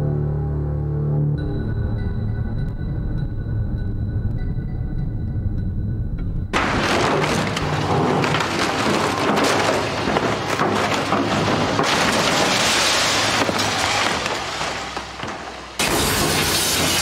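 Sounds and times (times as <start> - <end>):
timber crackling and splintering: 6.6 - 17.0.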